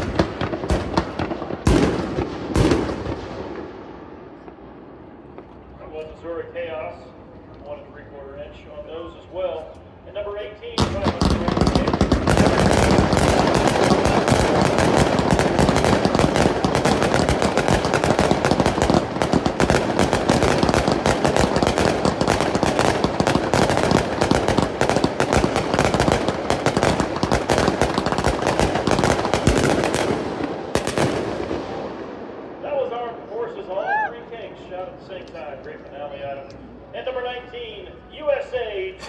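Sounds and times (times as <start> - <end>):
firework cake barrage: 0.0 - 4.6, 10.4 - 34.0.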